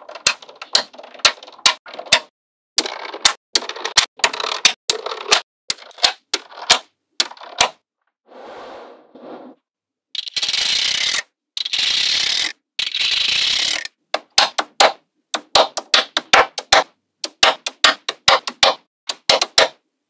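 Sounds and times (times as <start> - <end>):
magnetic balls snapping together: 14.1 - 19.8.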